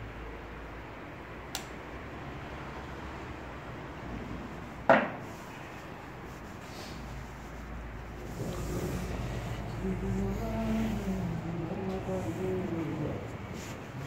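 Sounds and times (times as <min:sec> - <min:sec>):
steady background noise: 0:00.0 - 0:14.0
light click: 0:01.5 - 0:01.8.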